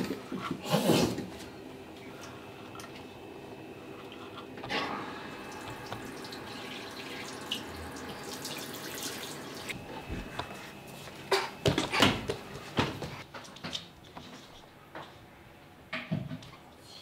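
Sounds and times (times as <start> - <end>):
tap water running into sink: 5.2 - 9.8.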